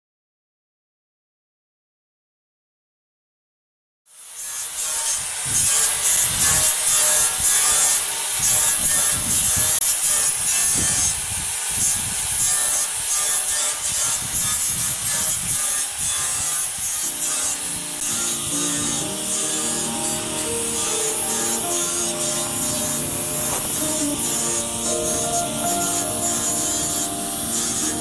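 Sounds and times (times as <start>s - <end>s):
angle grinder grinding metal: 4.1s - 28.0s.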